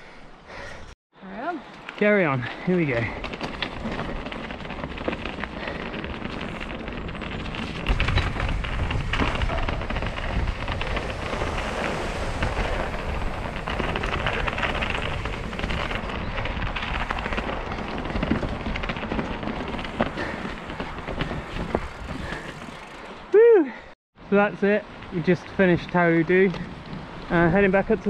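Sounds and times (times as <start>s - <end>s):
tyres rumbling on rock and gravel: 2.0s - 23.3s, 24.5s - 28.0s
wind buffeting microphone: 2.5s - 23.3s
bike clattering and knocking: 2.9s - 23.2s.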